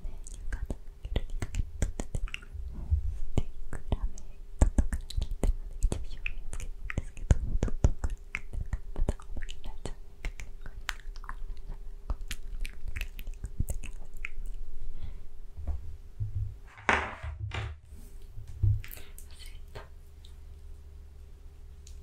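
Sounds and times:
soft whispering: 0:00.0 - 0:15.2, 0:18.8 - 0:20.4
wet mouth clicks: 0:00.2 - 0:02.5, 0:03.3 - 0:14.6, 0:18.8 - 0:20.4.

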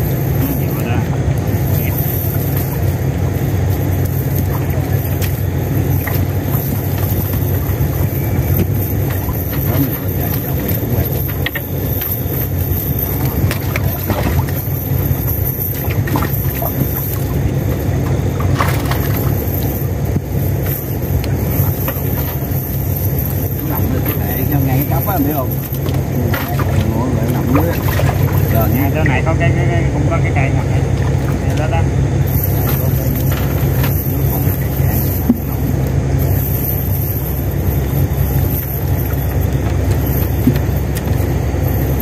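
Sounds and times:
boat engine idling: 0:00.0 - 0:42.0.

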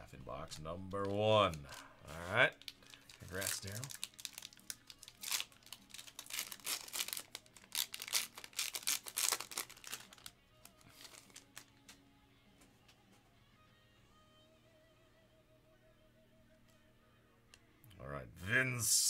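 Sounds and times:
quiet background music: 0:00.0 - 0:19.0
foil pack tearing and crinkling: 0:00.9 - 0:11.7.

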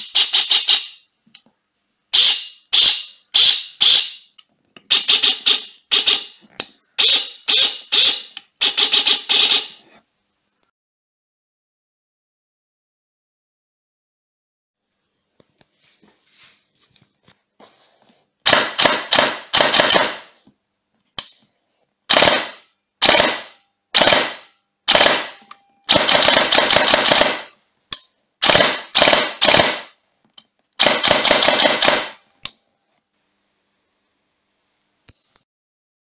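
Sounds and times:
airsoft rifle firing bursts: 0:04.9 - 0:06.4, 0:07.0 - 0:09.8, 0:18.4 - 0:20.4, 0:22.1 - 0:27.6, 0:28.4 - 0:30.0, 0:30.8 - 0:32.2.

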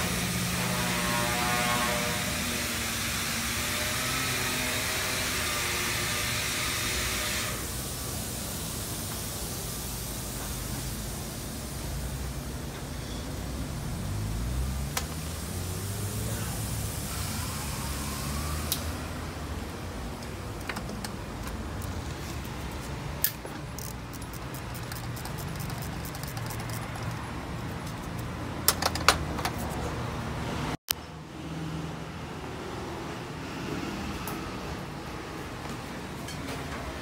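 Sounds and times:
metal tools clinking on engine: 0:23.2 - 0:29.6.

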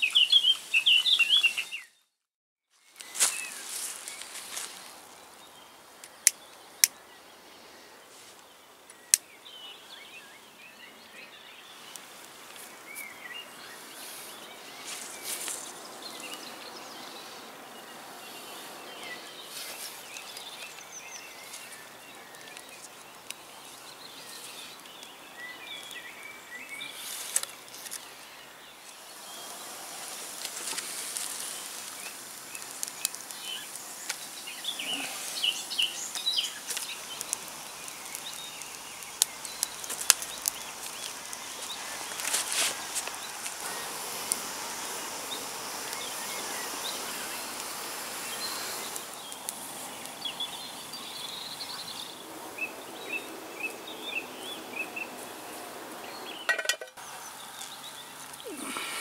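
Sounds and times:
birds chirping: 0:00.0 - 0:02.2, 0:02.8 - 0:59.0
kindling crackling: 0:02.9 - 0:09.4, 0:11.8 - 0:59.0.

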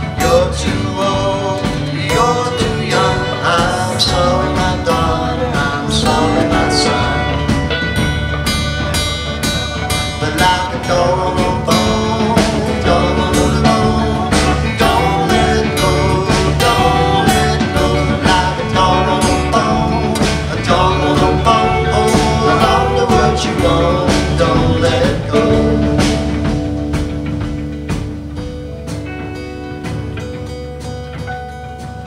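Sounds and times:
man singing: 0:00.0 - 0:07.9, 0:10.0 - 0:26.6
steady drum beat: 0:00.0 - 0:31.5
electric guitar: 0:00.0 - 0:32.0.

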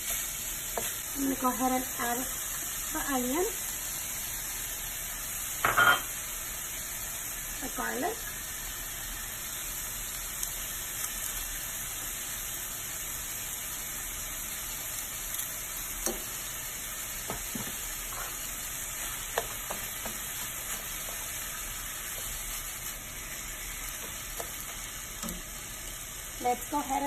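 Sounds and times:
meat sizzling in a frying pan: 0:00.0 - 0:27.0
spatula tapping a pan: 0:16.0 - 0:16.3, 0:17.2 - 0:17.8, 0:19.2 - 0:21.3.

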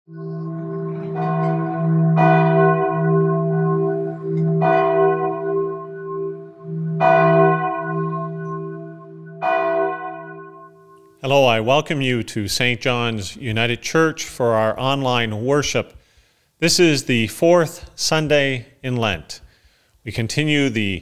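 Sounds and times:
church bell tolling: 0:00.1 - 0:11.3.

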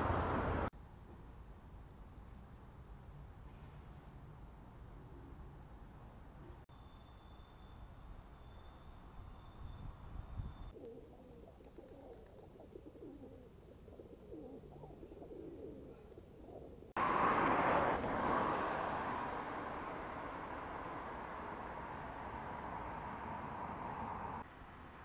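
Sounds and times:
street traffic rush: 0:00.0 - 0:01.0, 0:16.9 - 0:25.0
pigeons cooing: 0:10.8 - 0:16.9.

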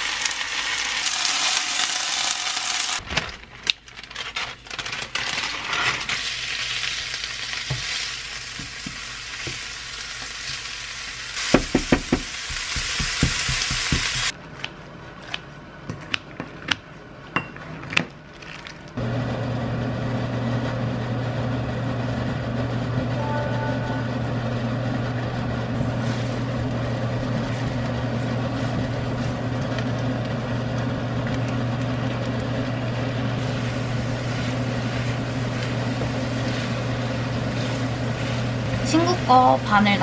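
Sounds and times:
meat sizzling in a frying pan: 0:00.0 - 0:03.0, 0:06.2 - 0:14.3.

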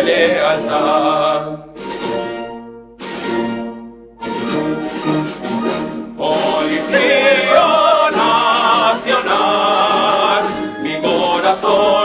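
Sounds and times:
choir singing with vibrato: 0:00.0 - 0:01.8, 0:06.0 - 0:12.0
wind band playing hymn chords: 0:00.0 - 0:12.0.

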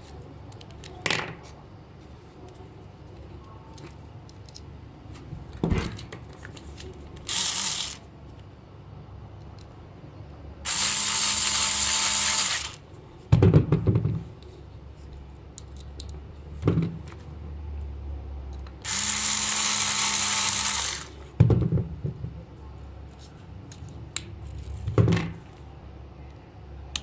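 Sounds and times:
electric screwdriver whirring: 0:07.3 - 0:08.0, 0:10.7 - 0:12.8, 0:18.8 - 0:21.2.

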